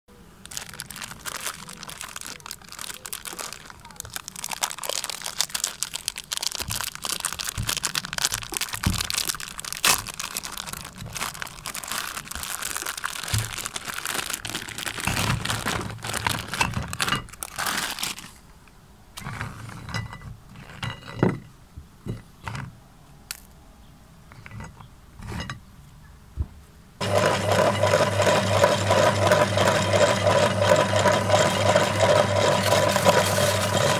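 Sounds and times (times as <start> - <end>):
plastic wrapper crinkling: 0.4 - 18.6
loud steady humming: 27.0 - 33.9.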